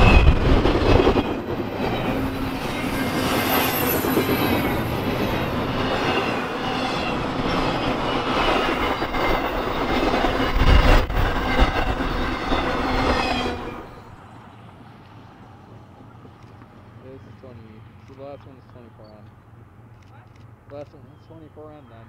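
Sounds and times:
high squeal of train wheels: 0.0 - 14.7
train wheels rumbling and clattering: 0.0 - 19.4.

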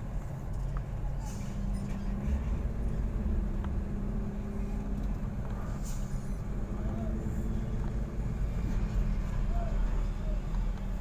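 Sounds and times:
truck diesel engine rumbling: 0.0 - 11.0.

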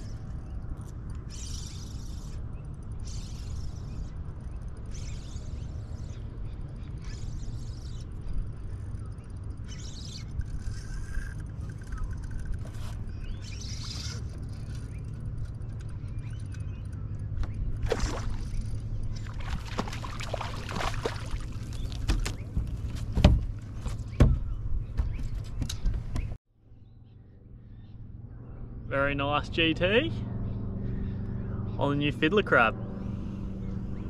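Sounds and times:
steady low rumble: 0.0 - 34.0
fish splashing at water surface: 17.8 - 21.9.

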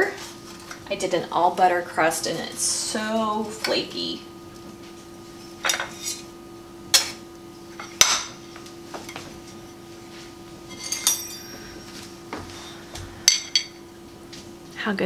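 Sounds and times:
pie server scraping a dish: 5.4 - 6.3
metal clinking on ceramic plate: 10.8 - 11.6.

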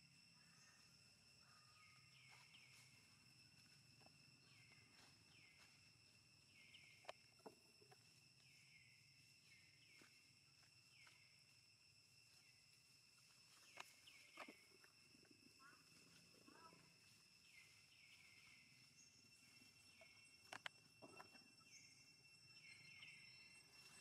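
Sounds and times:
faint clicks: 20.0 - 21.4.

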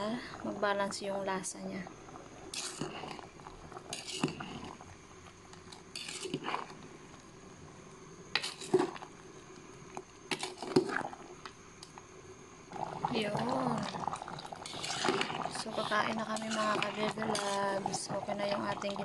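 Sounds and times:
metal spoon scraping a pot: 2.5 - 3.2, 3.9 - 4.7, 5.9 - 6.7, 14.5 - 18.1.

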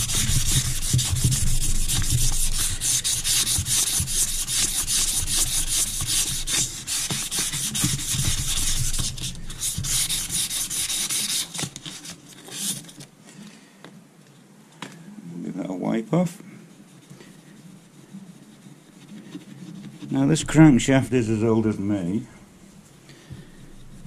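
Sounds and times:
abrasive paper rubbing on metal: 0.0 - 13.0, 16.8 - 21.9.

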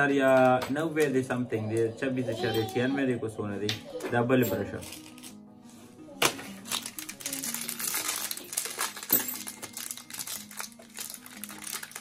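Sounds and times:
background music: 0.0 - 12.0
plastic packaging crinkling: 4.7 - 5.4, 6.2 - 12.0.

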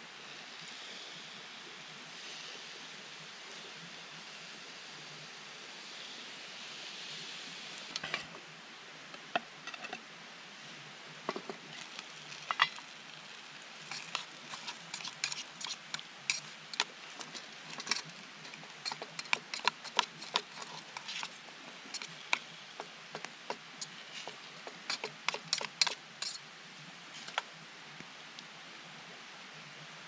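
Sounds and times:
food sizzling in pot: 11.3 - 26.5, 27.1 - 27.4
spatula scraping metal pot: 11.7 - 26.4, 27.2 - 27.4.

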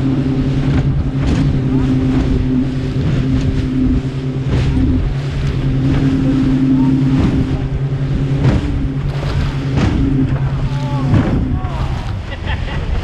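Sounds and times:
hull slapping waves: 0.0 - 13.0
outboard motor running: 0.0 - 13.0
water noise: 0.0 - 13.0
wind: 0.0 - 13.0.

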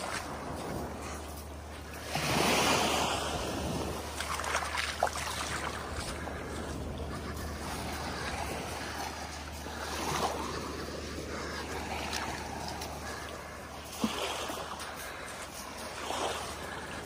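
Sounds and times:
wind rumble on microphone: 0.0 - 15.0
small waves lapping on shore: 0.0 - 17.0.

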